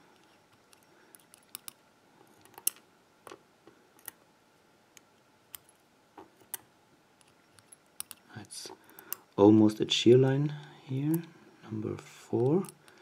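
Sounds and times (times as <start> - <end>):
metal tweezers clicking on lock pins: 0.2 - 1.8, 7.2 - 8.3, 12.4 - 13.0.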